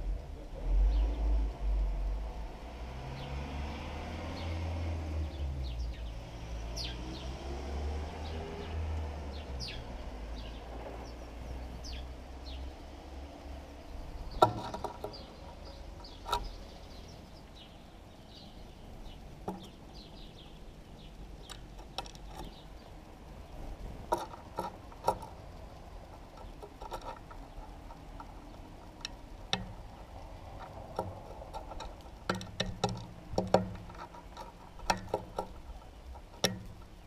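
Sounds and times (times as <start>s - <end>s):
low traffic rumble: 0.0s - 37.0s
sparrows chirping: 0.8s - 1.4s, 3.1s - 3.4s, 4.2s - 37.0s
sharp knocks: 14.3s - 15.3s, 30.9s - 35.6s.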